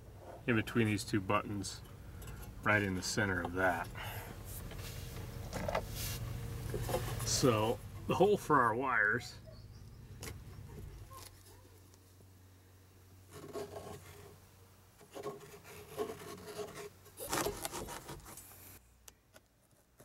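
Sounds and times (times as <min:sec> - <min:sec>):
blade cutting and scraping fabric: 0:15.2 - 0:18.5.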